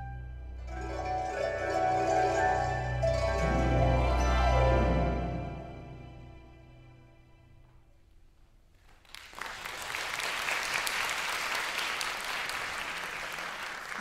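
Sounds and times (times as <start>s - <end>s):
audience applauding: 8.8s - 14.0s.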